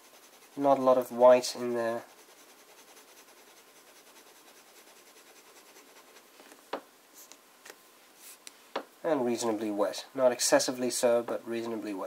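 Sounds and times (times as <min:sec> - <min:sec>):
pen nib scratching on paper: 0:00.0 - 0:01.1, 0:02.0 - 0:06.3.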